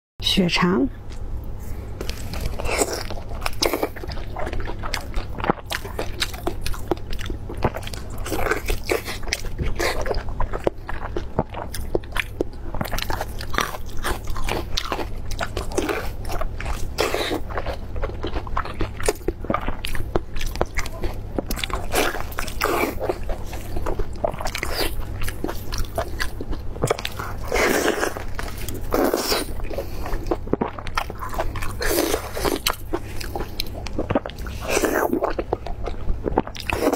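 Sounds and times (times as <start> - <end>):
biting and chewing: 2.0 - 36.9.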